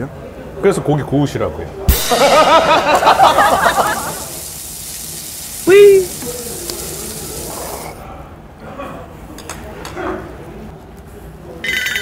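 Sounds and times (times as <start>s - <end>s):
faint mumble of voices: 6.2s - 12.0s.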